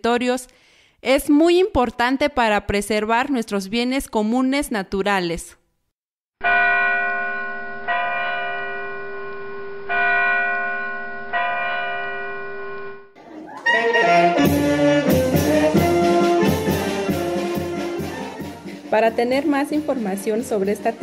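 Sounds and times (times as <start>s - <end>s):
ringing bell-like chord: 6.4s - 13.1s
rhythmic background music: 13.6s - 21.0s.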